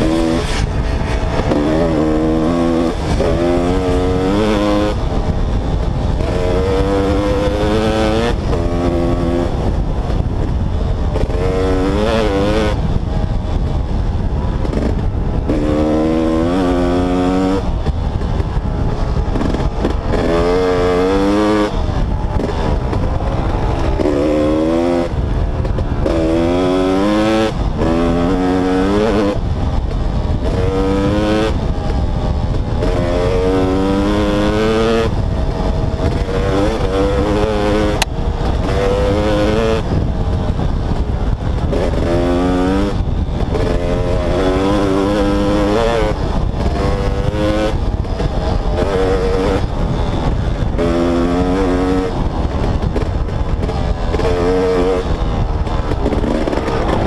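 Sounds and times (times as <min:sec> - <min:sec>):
low rumble: 0:00.0 - 0:28.3, 0:49.6 - 0:57.0
dirt bike engine revving: 0:00.0 - 0:57.0.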